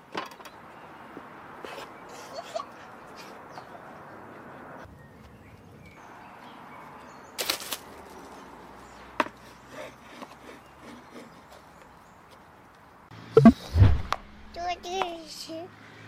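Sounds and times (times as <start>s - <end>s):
outdoor background noise: 0.0s - 16.0s
sharp knock: 13.4s - 14.4s.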